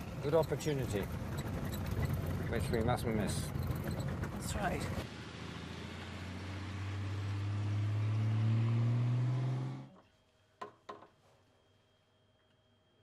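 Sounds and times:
vehicle engine driving on dirt: 0.0s - 9.9s.

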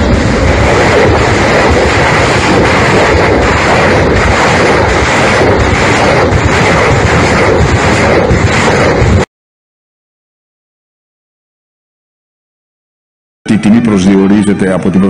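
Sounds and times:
fire blast roaring: 0.0s - 9.3s.

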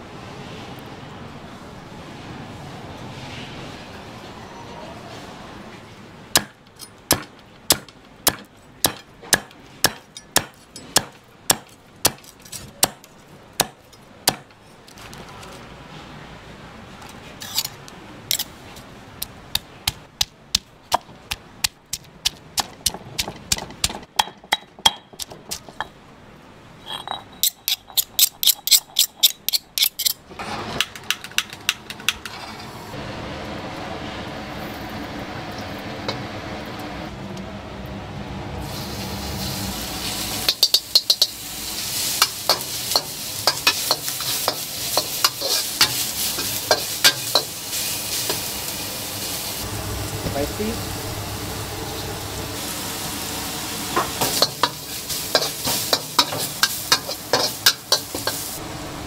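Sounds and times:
steady hiss: 38.6s - 58.7s.

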